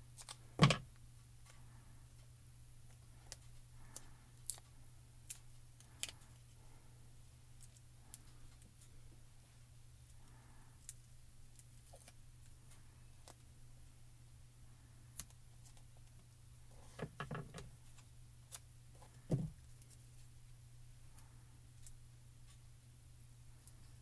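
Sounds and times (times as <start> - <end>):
faint low hum: 0.0 - 24.0
foam pieces peeled and pressed: 0.1 - 1.6.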